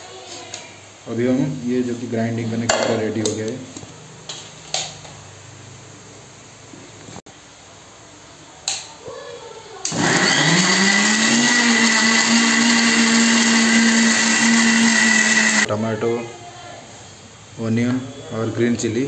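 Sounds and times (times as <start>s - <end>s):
mixer grinder motor whining: 9.9s - 15.7s.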